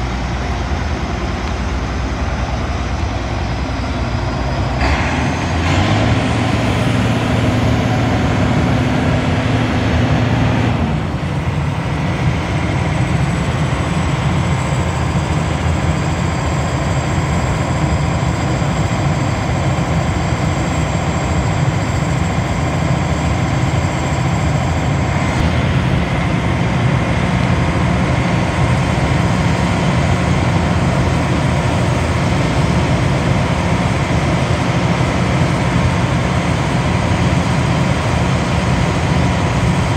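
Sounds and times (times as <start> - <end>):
faint high whine: 0.0 - 5.7
diesel engine running loud: 0.0 - 39.9.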